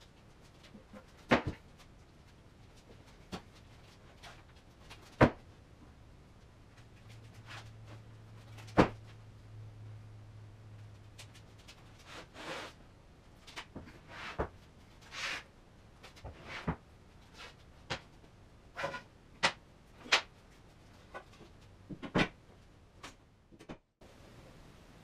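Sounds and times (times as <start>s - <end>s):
boards sliding and shuffling: 13.6s - 18.0s.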